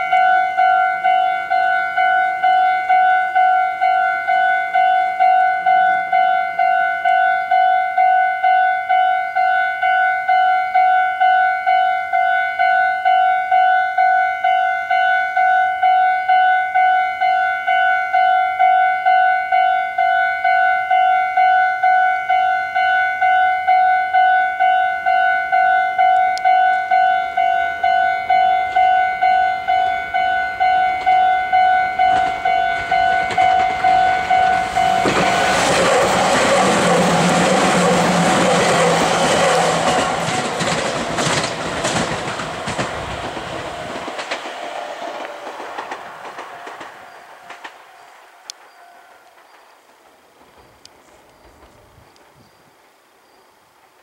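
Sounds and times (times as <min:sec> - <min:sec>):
level crossing bell ringing: 0:00.0 - 0:35.5
electric train passing: 0:00.0 - 0:52.0.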